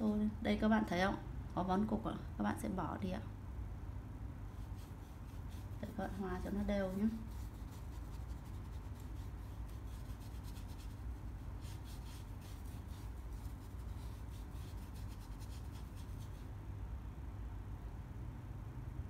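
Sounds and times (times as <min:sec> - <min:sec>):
paintbrush swishing on paper: 0:04.5 - 0:16.5.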